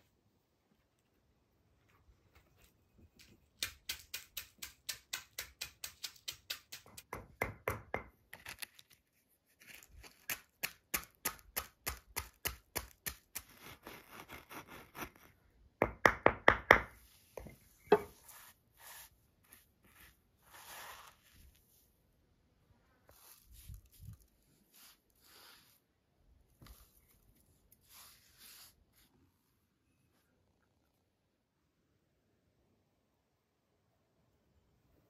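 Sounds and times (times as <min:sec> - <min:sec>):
pestle pounding bread in mortar: 0:03.6 - 0:08.1.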